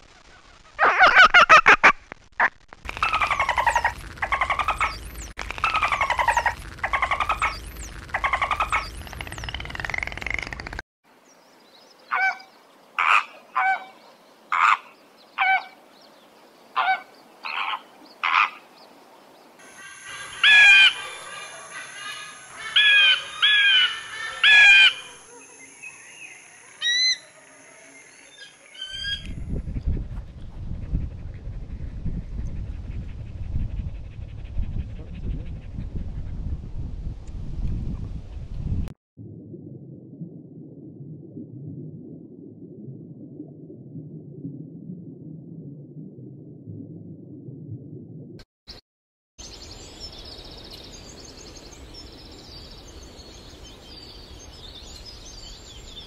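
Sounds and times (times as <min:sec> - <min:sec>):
wind rumble: 0:29.0 - 0:48.4.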